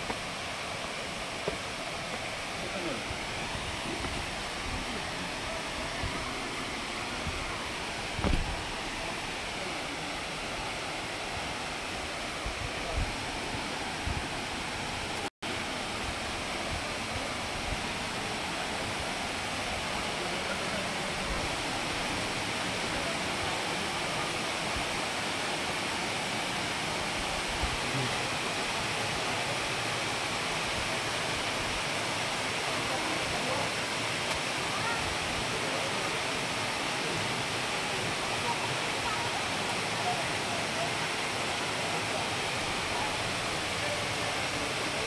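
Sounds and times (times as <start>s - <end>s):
waterfall rushing: 0.0s - 45.0s.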